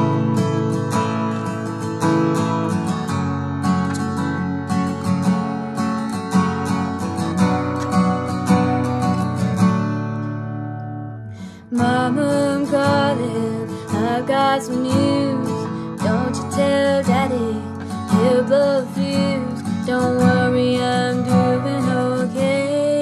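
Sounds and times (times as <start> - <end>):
acoustic guitar strumming: 0.0 - 23.0.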